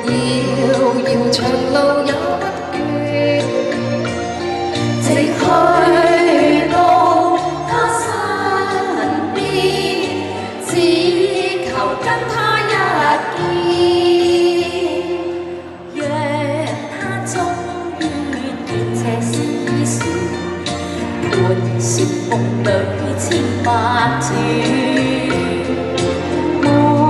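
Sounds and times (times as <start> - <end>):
women singing pop ballad: 0.0 - 4.2, 4.8 - 27.0
backing music with bass line: 0.0 - 27.0.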